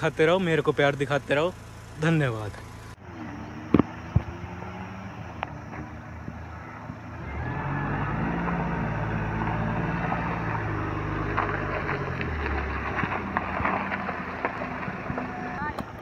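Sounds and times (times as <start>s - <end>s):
diesel engine pulling uphill: 0.0s - 16.0s
tyres crunching over stones: 8.4s - 16.0s.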